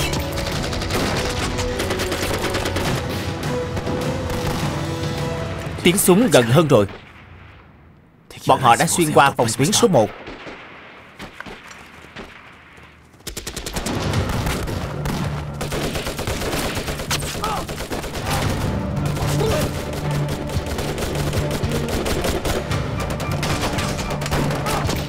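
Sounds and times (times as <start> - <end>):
rapid machine-gun fire: 0.0 - 3.1, 13.2 - 25.0
rifle shots: 10.1 - 25.0.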